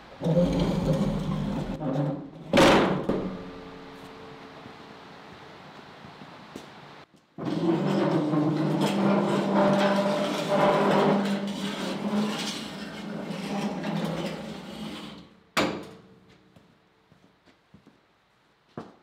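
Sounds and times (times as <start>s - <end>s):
steel table legs scraping concrete: 0.2s - 4.2s, 7.4s - 15.4s.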